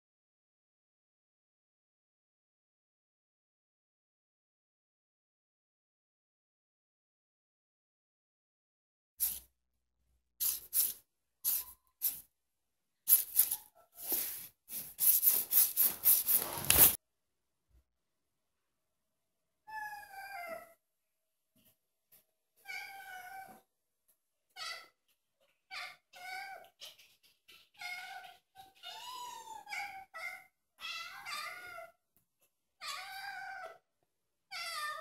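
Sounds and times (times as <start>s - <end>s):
cats meowing: 19.7s - 20.8s, 22.6s - 23.7s, 24.5s - 32.0s, 32.8s - 33.8s, 34.5s - 35.0s.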